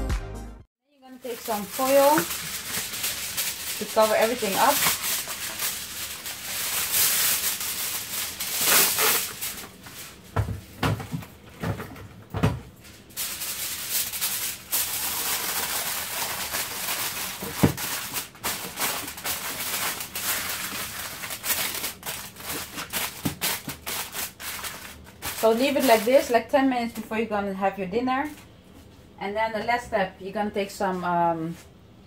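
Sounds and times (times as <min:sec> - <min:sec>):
aluminium foil crinkling: 0:01.2 - 0:10.3, 0:12.8 - 0:26.5.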